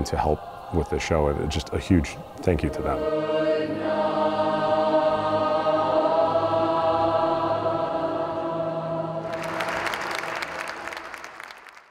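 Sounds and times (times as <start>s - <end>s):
choir and orchestra chord: 0.0s - 11.1s
audience applause: 9.2s - 11.9s.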